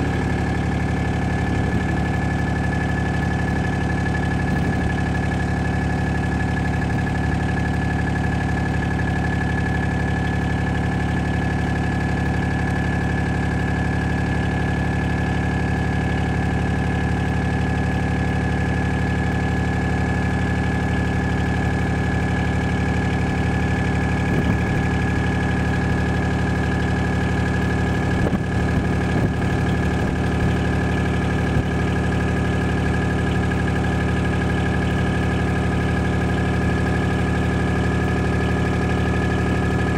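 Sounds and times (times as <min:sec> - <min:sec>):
car engine and road drone: 0:00.0 - 0:39.9.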